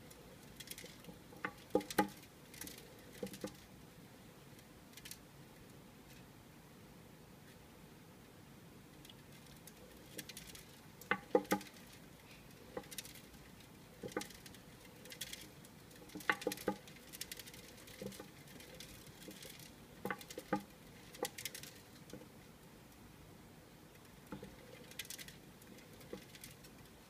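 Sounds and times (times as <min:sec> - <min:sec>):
exercise wheel clicking and tapping: 0:00.0 - 0:03.6, 0:10.1 - 0:11.9, 0:12.7 - 0:13.4, 0:14.0 - 0:22.3, 0:24.2 - 0:26.7
faint rustling: 0:08.9 - 0:23.1, 0:23.9 - 0:27.0.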